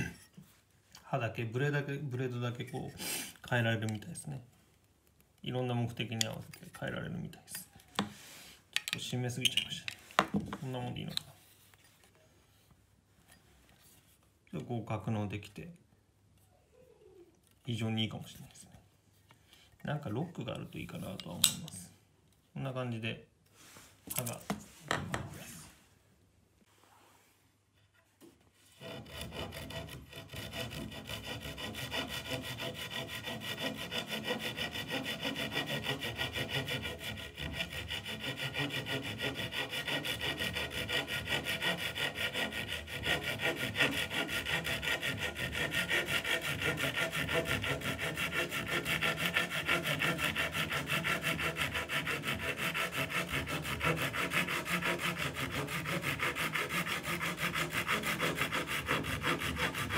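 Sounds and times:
handsaw cutting plywood: 0:28.8 - 0:59.9.

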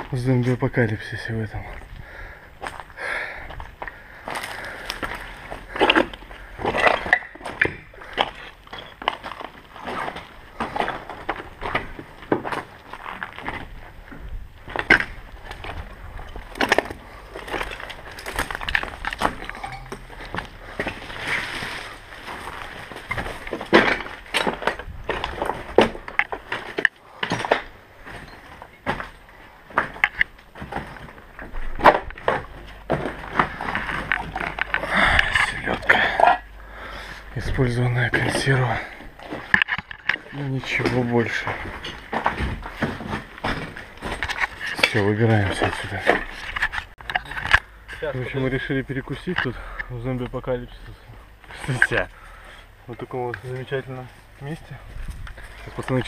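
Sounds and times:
knocks and scuffs of rummaging: 0:03.6 - 0:36.5, 0:37.9 - 0:48.1.

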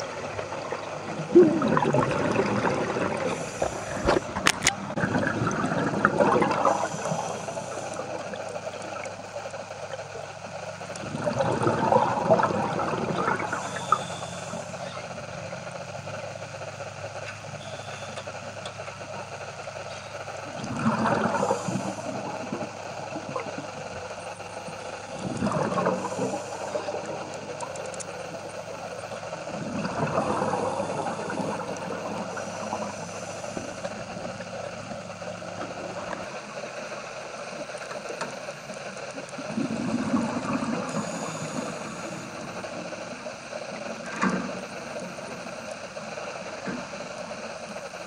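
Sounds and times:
steady low hum: 0:00.0 - 0:48.0
diver's breath bubbling underwater: 0:00.1 - 0:09.2, 0:11.0 - 0:14.7, 0:20.5 - 0:23.8, 0:25.1 - 0:27.9, 0:29.3 - 0:34.4.

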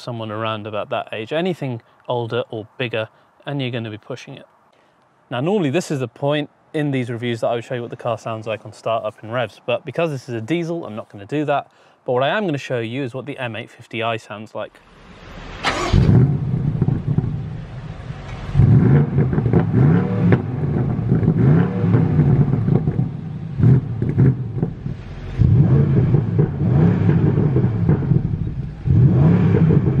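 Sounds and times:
car engine starting and revving: 0:14.8 - 0:30.0.

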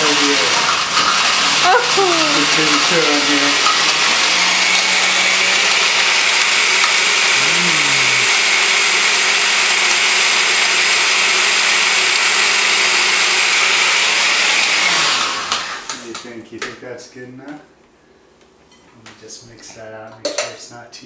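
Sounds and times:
blender running: 0:00.0 - 0:16.2.

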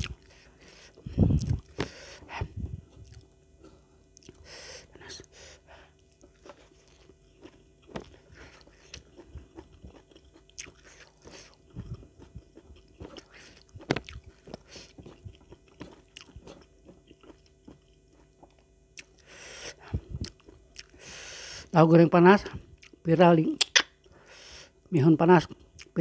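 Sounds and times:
person chewing food: 0:00.0 - 0:21.7, 0:22.8 - 0:23.0
food crunching: 0:01.3 - 0:02.1, 0:02.9 - 0:03.3, 0:06.0 - 0:19.3, 0:20.1 - 0:21.0
wet mouth clicks: 0:23.5 - 0:23.9.

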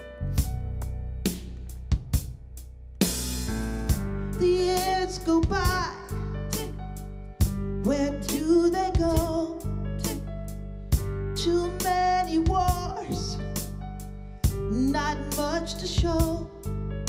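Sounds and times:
instrumental backing with bass and drums: 0:00.0 - 0:17.0
woman singing with vibrato: 0:04.4 - 0:06.8, 0:07.8 - 0:10.3, 0:11.4 - 0:13.4, 0:14.7 - 0:16.5.

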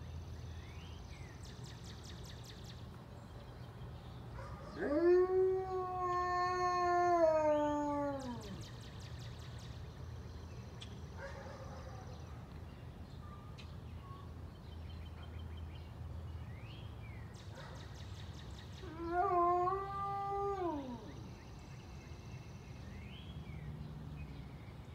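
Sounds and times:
dog howling: 0:04.7 - 0:08.6, 0:18.8 - 0:21.2.

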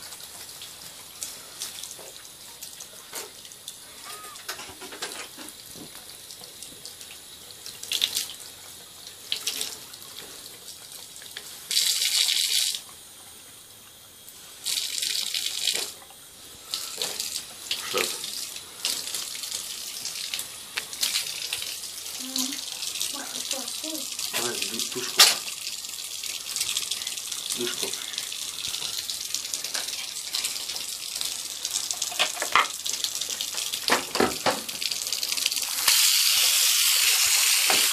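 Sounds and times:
tap water splashing into bathtub: 0:24.2 - 0:25.6, 0:29.4 - 0:36.5, 0:37.5 - 0:37.9.

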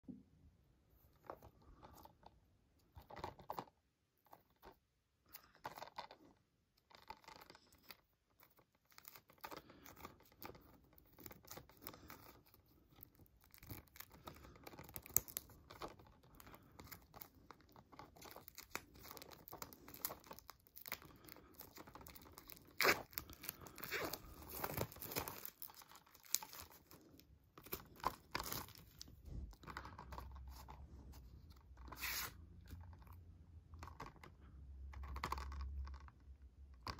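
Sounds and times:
plastic wrap crinkling and tearing: 0:08.5 - 0:30.7.

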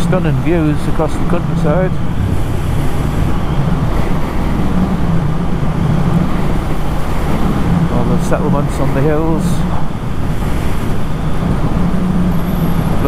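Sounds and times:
motorcycle engine cruising: 0:00.0 - 0:13.0
wind noise on microphone: 0:01.5 - 0:08.0.

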